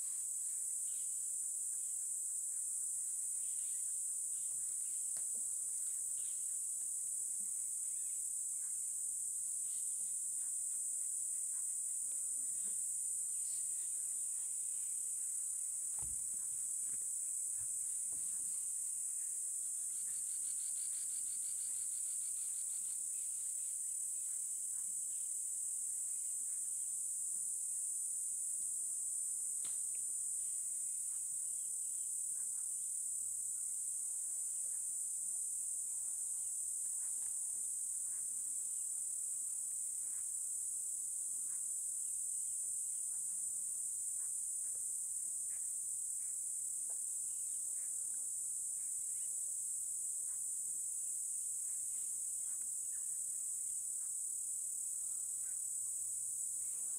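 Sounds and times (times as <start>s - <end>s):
insect chorus: 0.0s - 56.9s.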